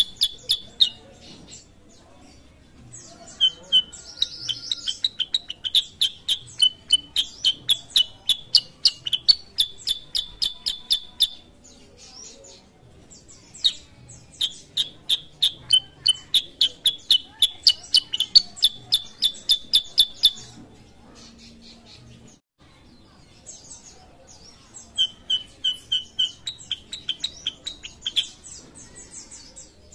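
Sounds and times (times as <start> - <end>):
bird chirping rapidly: 0.0 - 1.7, 3.0 - 11.6, 13.3 - 20.6, 24.7 - 28.8.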